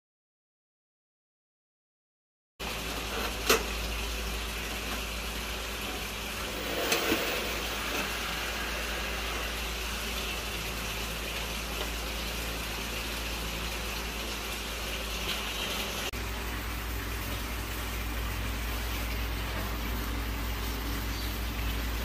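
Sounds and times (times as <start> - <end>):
steady hum: 6.1 - 13.8
low rumble: 6.3 - 12.2.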